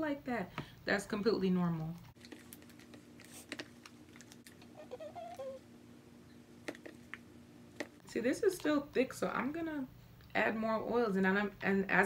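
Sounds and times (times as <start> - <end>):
brief wavering pitched sound: 4.8 - 5.6.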